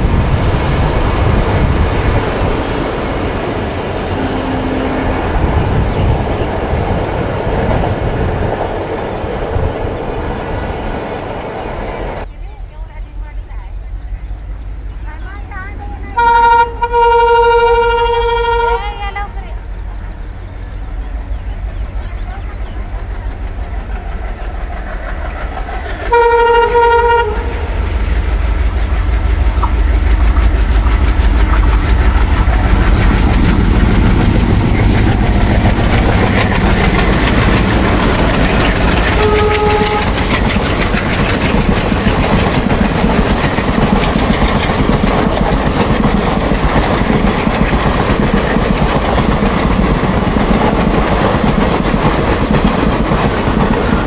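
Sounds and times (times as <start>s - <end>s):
locomotive engines rumbling: 0.0s - 54.0s
train horn blasts: 4.0s - 5.6s, 16.1s - 19.3s, 26.1s - 28.0s, 39.1s - 40.4s
wheels clattering over rail joints: 28.3s - 54.0s.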